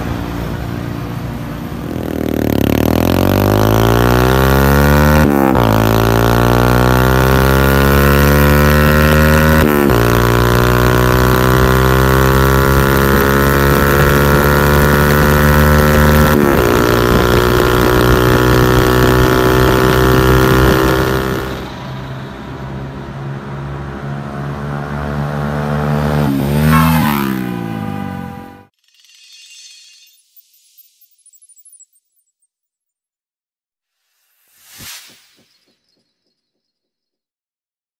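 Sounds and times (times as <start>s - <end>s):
motorcycle engine revving: 0.0s - 28.7s
quieter vehicle engine: 0.0s - 28.7s.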